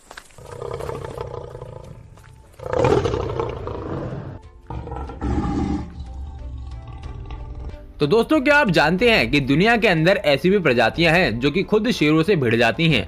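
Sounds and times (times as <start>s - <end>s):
lion roaring: 0.4s - 7.9s
background music: 0.4s - 13.0s.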